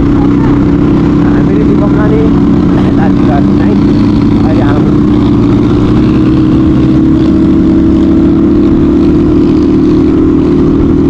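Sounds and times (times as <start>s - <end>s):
dirt bike engine: 0.0s - 11.0s
wind rumble on microphone: 0.0s - 11.0s.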